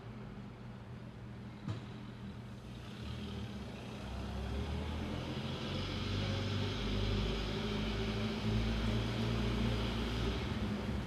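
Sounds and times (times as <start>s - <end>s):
car engine accelerating: 2.7s - 11.0s.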